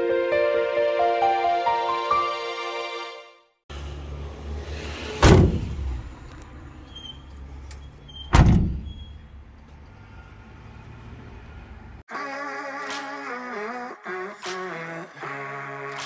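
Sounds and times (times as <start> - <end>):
van doors slamming: 5.2 - 6.1, 8.2 - 9.3.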